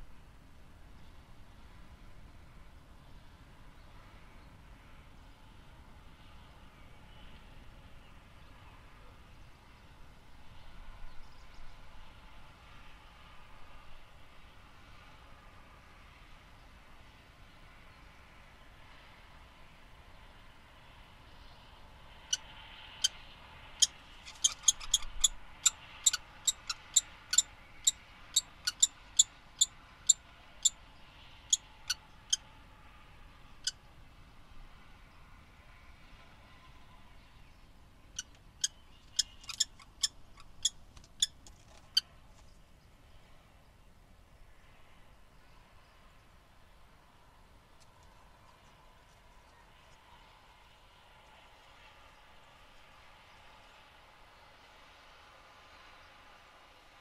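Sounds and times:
distant street traffic rumble: 0.0s - 57.0s
kestrels calling: 23.8s - 29.7s, 38.2s - 42.0s
faint bird chirps: 23.8s - 30.8s.

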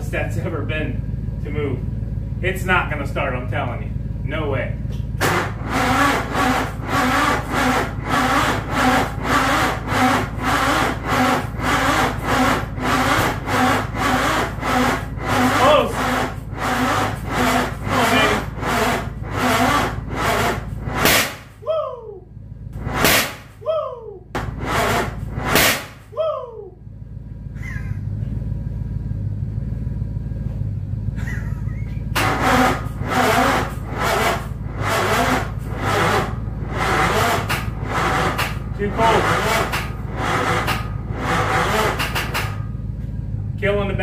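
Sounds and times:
engine cranking without starting: 4.8s - 21.7s, 22.6s - 23.7s, 24.4s - 26.2s, 31.2s - 43.5s.

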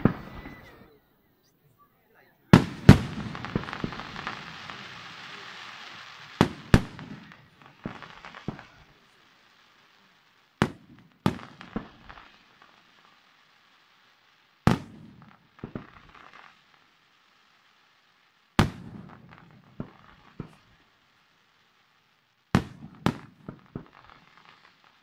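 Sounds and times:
firework shells bursting: 2.5s - 9.0s.

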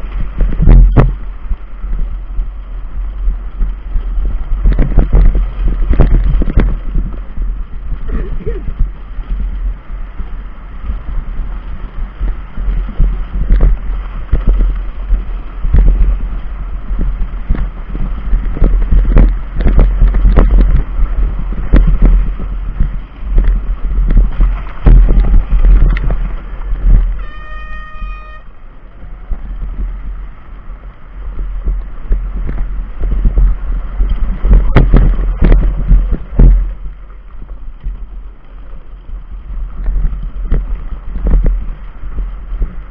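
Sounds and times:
small tyres rolling on dirt track: 0.0s - 42.9s
wind buffeting microphone: 0.0s - 42.9s
brief high pitched tone: 27.2s - 28.6s.

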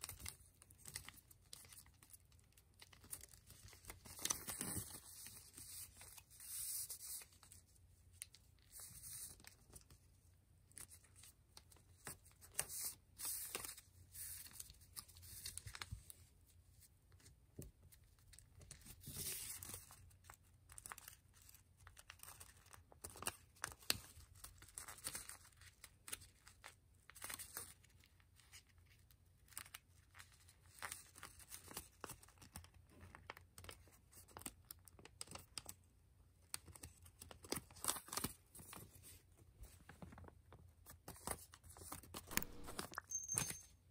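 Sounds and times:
paper rustling and crinkling: 0.0s - 10.1s, 17.1s - 35.7s, 36.5s - 43.0s.

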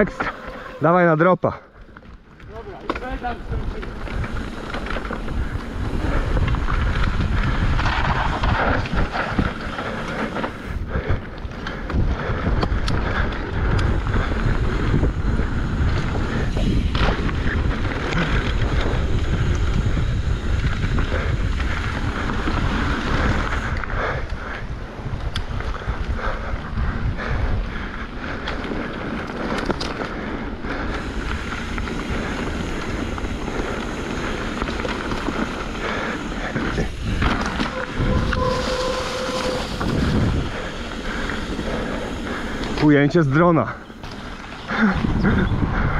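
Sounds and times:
tyres rumbling on dirt trail: 0.0s - 45.9s
wind buffeting microphone: 1.7s - 45.9s
bike knocks and rattles: 31.0s - 38.5s.

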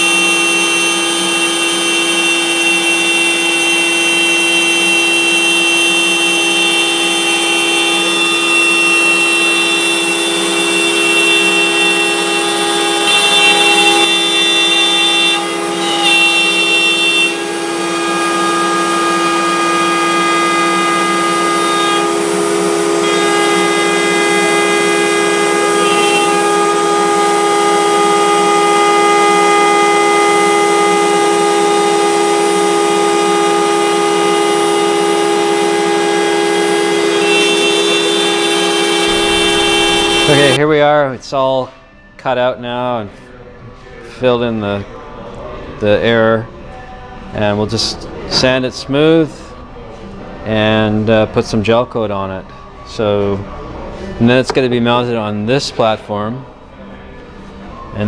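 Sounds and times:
router spindle whining: 0.0s - 40.6s.

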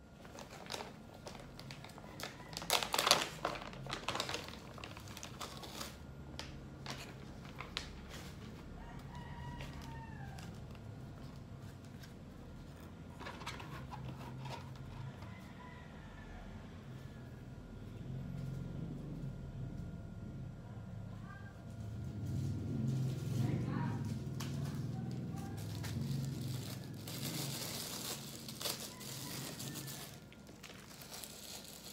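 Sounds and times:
crinkly handling crackles: 0.0s - 15.6s, 21.6s - 31.9s
rooster crowing: 1.8s - 3.0s, 8.5s - 10.8s, 14.7s - 17.6s, 23.4s - 31.2s
steady low hum: 3.4s - 31.9s.

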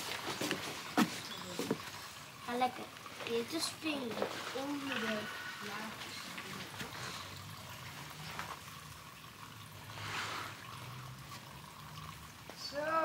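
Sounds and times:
water trickling: 0.0s - 13.0s
water swish: 3.3s - 12.4s.

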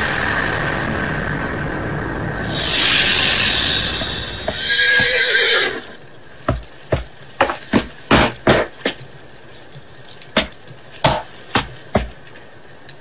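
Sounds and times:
loud rushing noise: 0.0s - 5.3s
footsteps on wooden floor: 6.5s - 9.0s, 10.4s - 12.2s.

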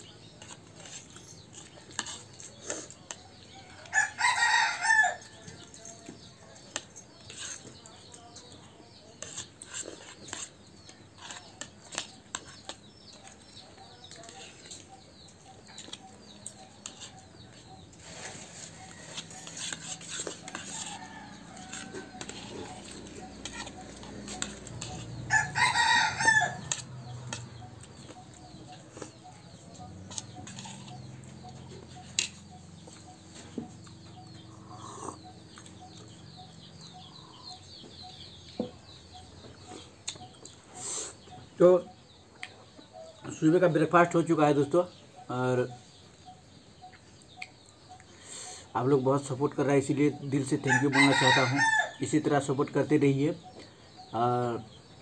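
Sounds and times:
spoons scraping ceramic plates: 0.0s - 3.5s, 5.6s - 7.8s, 9.1s - 33.7s
rooster crowing: 3.7s - 5.4s, 20.6s - 22.8s, 25.3s - 26.8s, 50.6s - 52.0s.

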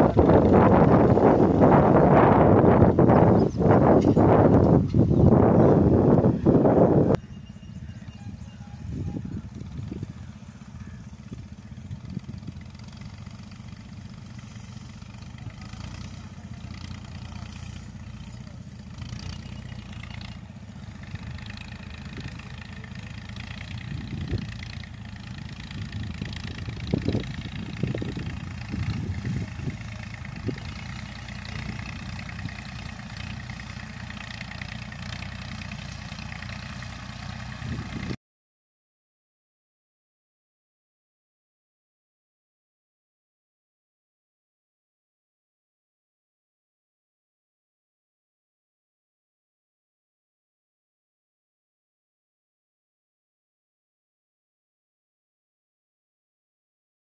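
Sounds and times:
distant tractor engine running: 0.0s - 38.2s.

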